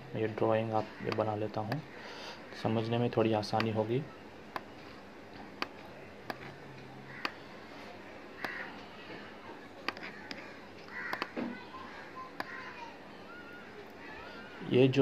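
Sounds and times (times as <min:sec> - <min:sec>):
faint calls in background: 0:06.3 - 0:14.8
computer mouse button clicking: 0:08.4 - 0:08.6, 0:09.8 - 0:10.4, 0:11.0 - 0:11.4.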